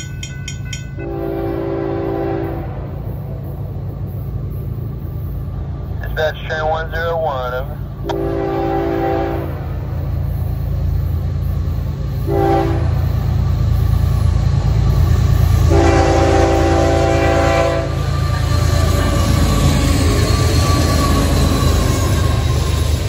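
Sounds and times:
diesel locomotive rumble: 0:00.0 - 0:23.0
locomotive air horn blasts: 0:01.0 - 0:02.9, 0:08.0 - 0:09.8, 0:12.2 - 0:13.0, 0:15.6 - 0:18.7.

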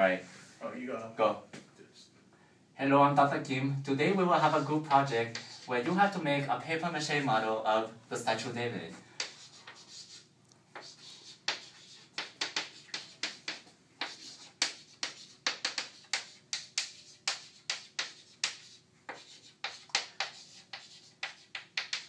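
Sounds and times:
chalk tapping and scratching: 0:04.4 - 0:06.0, 0:09.2 - 0:22.0.

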